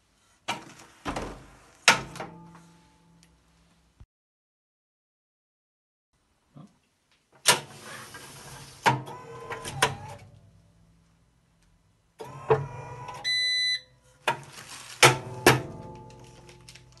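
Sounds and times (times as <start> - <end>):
machine metallic clunks: 15.0 - 16.4.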